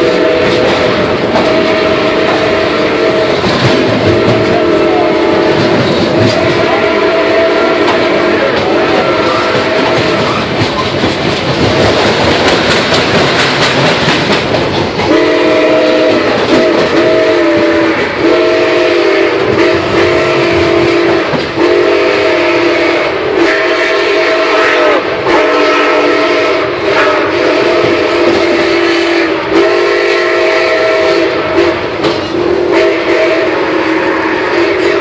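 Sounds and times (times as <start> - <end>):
steam locomotive whistle blasts: 0.0 - 10.5, 15.1 - 35.0
moving train rush and clatter: 0.0 - 35.0.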